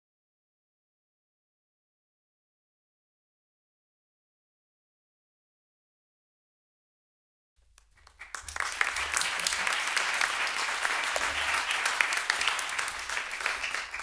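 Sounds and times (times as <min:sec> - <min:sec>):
audience clapping: 0:07.7 - 0:14.0.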